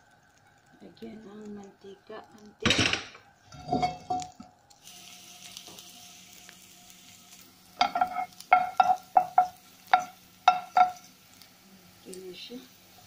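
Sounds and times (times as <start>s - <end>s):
garlic sizzling in hot oil: 0.0s - 13.0s
spatula knocking against pan: 7.8s - 11.0s.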